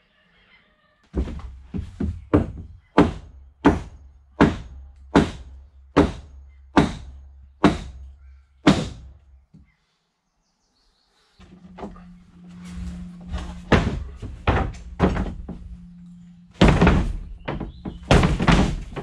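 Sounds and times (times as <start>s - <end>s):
hammer blows on wood: 2.5s - 9.2s.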